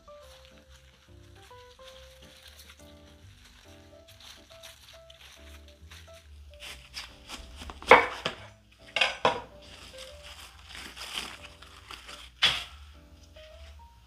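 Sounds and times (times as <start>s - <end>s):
cabbage leaves snapping: 0.0s - 13.0s
soft background music: 0.0s - 14.0s.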